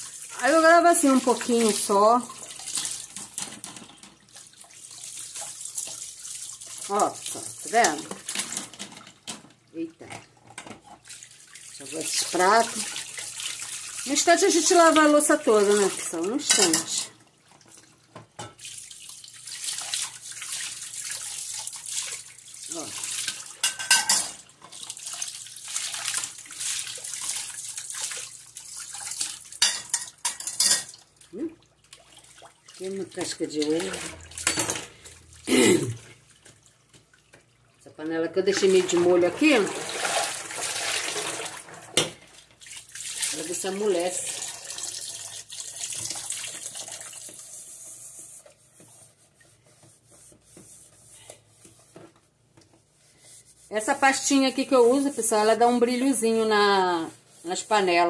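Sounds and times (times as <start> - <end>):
sponge scrubbing a pot: 0.0 - 2.8, 11.2 - 17.0, 38.4 - 41.7, 42.8 - 44.5, 46.6 - 58.0
tap water running into sink: 0.0 - 35.2, 38.4 - 49.0.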